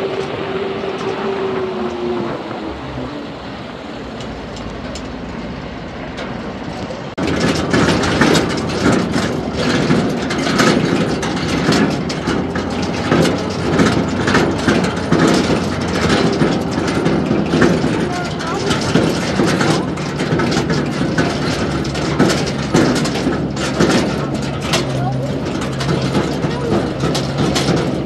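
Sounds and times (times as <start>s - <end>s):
vehicle drone: 0.0s - 28.0s
clicks and knocks: 6.1s - 28.0s.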